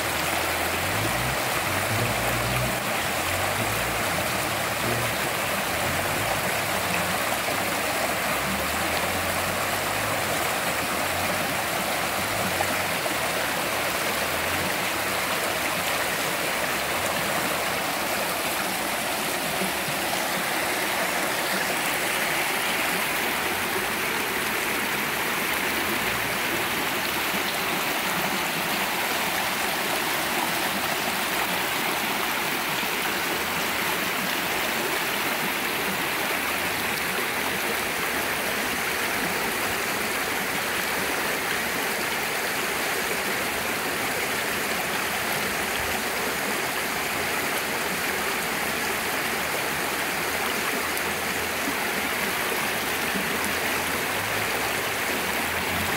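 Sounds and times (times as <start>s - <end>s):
creek flowing over stones: 0.0s - 55.9s.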